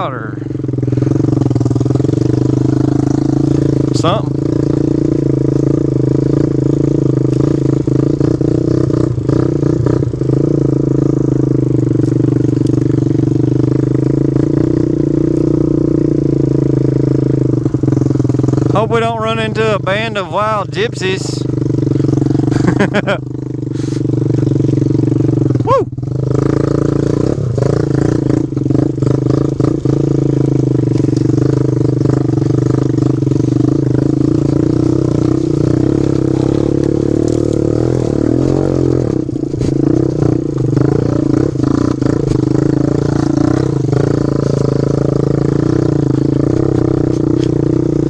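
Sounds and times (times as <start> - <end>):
motorbike engine running: 0.0 - 48.0
branches scraping against bike: 23.8 - 24.8, 27.8 - 47.8.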